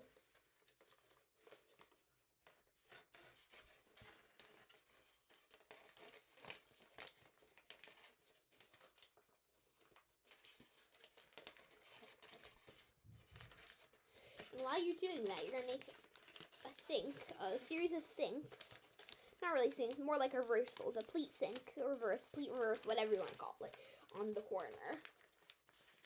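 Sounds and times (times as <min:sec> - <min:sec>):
paper crinkling as folded: 0:00.0 - 0:26.0.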